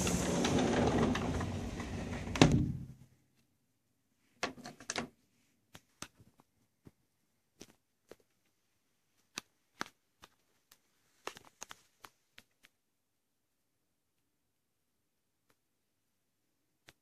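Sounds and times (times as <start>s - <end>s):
door shutting thud: 0.0s - 3.0s
outdoor wind noise: 0.0s - 3.0s.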